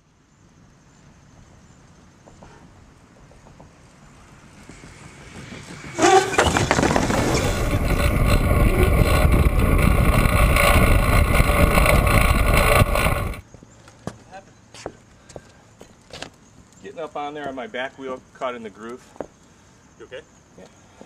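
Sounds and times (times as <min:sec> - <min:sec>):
faint outdoor background: 0:00.0 - 0:21.0
wind buffeting microphone: 0:04.1 - 0:13.4.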